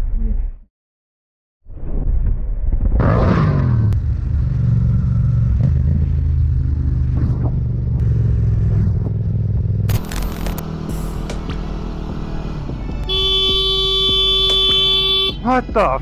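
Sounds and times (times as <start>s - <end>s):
motorcycle engine at low revs: 3.0s - 15.2s.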